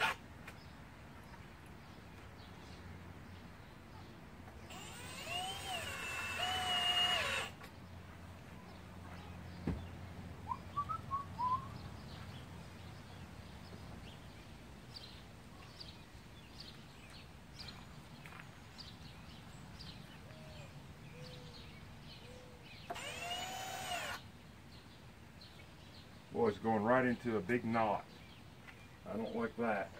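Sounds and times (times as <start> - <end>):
birds chirping: 0.0 - 29.9
cordless drill whirring: 4.7 - 7.6, 22.9 - 24.2.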